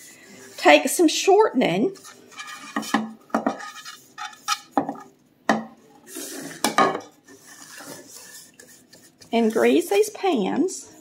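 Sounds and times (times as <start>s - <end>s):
hands rubbing metal pan: 1.8s - 5.1s, 6.1s - 11.0s
metal pans knocking and clinking: 2.3s - 5.8s, 6.6s - 7.2s.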